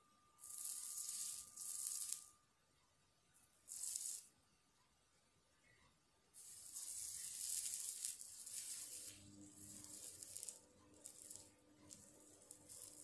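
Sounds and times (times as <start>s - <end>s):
flux sizzling and hissing: 3.7s - 4.3s, 6.4s - 13.0s.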